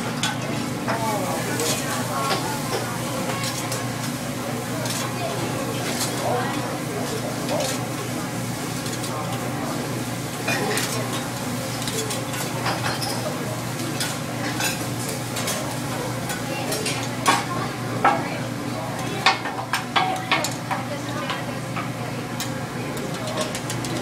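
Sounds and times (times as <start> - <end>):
food sizzling on a griddle: 0.3 - 18.0.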